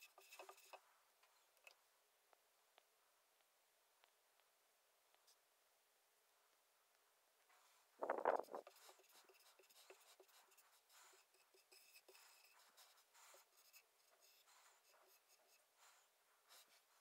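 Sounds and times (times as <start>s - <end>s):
marker writing on whiteboard: 0.1s - 0.8s, 8.0s - 16.9s.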